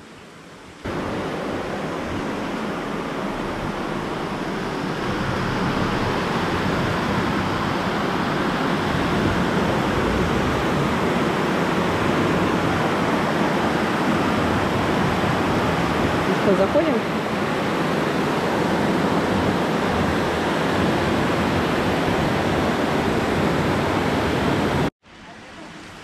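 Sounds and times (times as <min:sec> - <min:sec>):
water rushing and splashing: 0:00.4 - 0:24.9.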